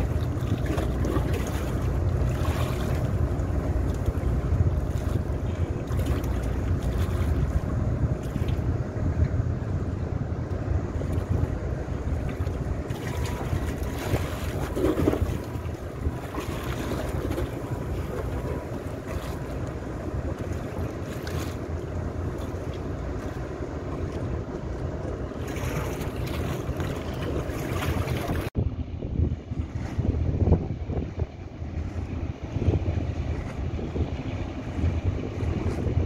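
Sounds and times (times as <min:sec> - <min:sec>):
water washing past: 0:00.0 - 0:09.1, 0:10.6 - 0:28.6
small boat engine drone: 0:00.0 - 0:36.0
wind buffeting microphone: 0:00.0 - 0:36.0.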